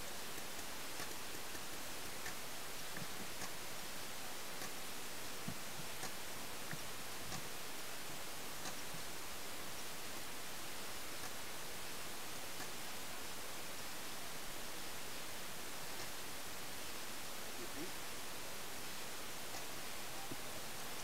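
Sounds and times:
faint clicks and ticks: 0:00.0 - 0:03.8, 0:04.5 - 0:09.1, 0:11.2 - 0:11.5, 0:12.5 - 0:12.9, 0:15.8 - 0:16.3, 0:19.4 - 0:20.4
steady hiss: 0:00.0 - 0:21.0.

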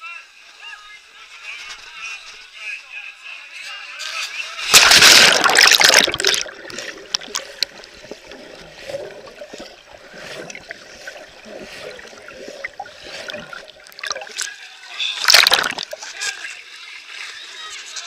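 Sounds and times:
loud splash: 0:04.6 - 0:14.5, 0:15.2 - 0:16.2
muffled underwater gurgling: 0:04.7 - 0:14.5, 0:15.1 - 0:16.4.

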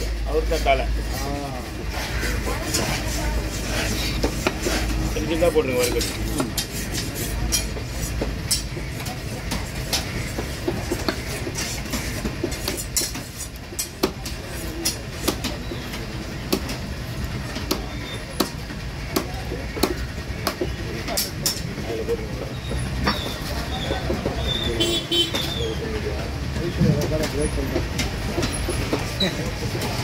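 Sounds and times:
knife chopping on wooden block: 0:09.5 - 0:14.4.

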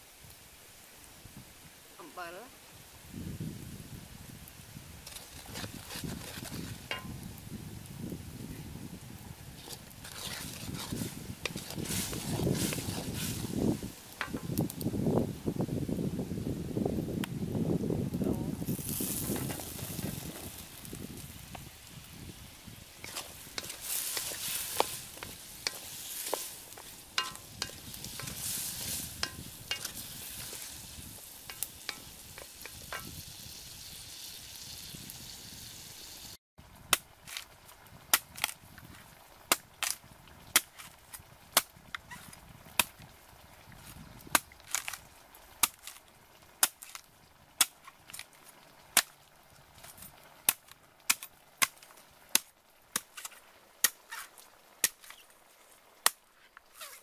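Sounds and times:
potatoes sizzling in a wok: 0:00.0 - 0:56.6
spoon clicking against pan: 0:27.2 - 0:28.4
cleaver chopping coconut husk: 0:39.5 - 0:41.0, 0:45.6 - 0:46.0, 0:46.6 - 0:47.0, 0:50.5 - 0:54.2.

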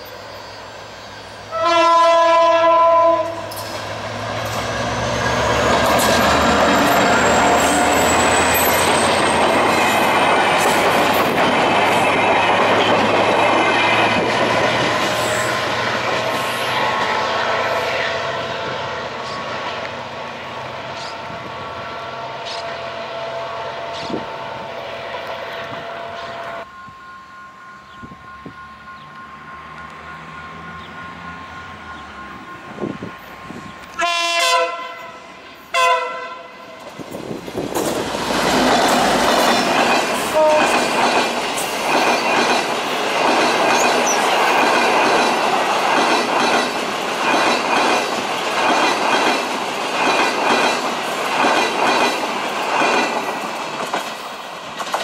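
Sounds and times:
train engine and wheels approaching: 0:00.0 - 0:55.0
locomotive air horn blast: 0:01.5 - 0:03.6, 0:33.9 - 0:36.6, 0:40.3 - 0:40.8.

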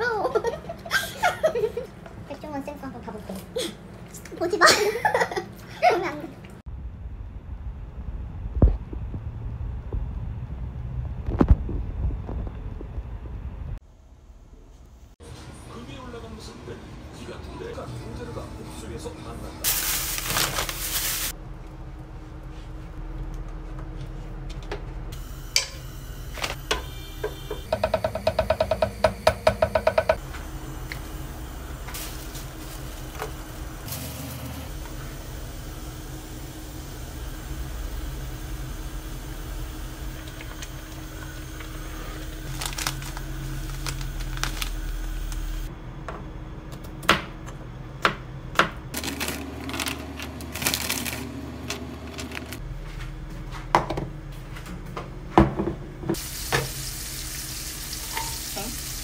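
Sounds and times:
steady low noise: 0:06.7 - 0:13.8
packet emptied into pot: 0:19.7 - 0:21.3, 0:42.4 - 0:45.0, 0:49.0 - 0:52.6.

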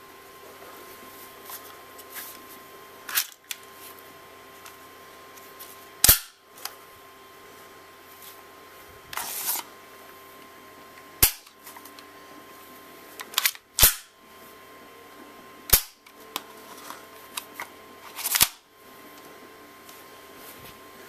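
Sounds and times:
pistol slide metallic clacks: 0:13.4 - 0:14.1.

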